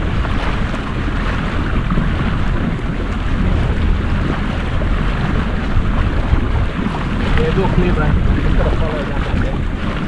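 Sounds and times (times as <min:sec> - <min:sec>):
motor boat engine: 0:00.0 - 0:10.0
wind buffeting microphone: 0:00.0 - 0:10.0.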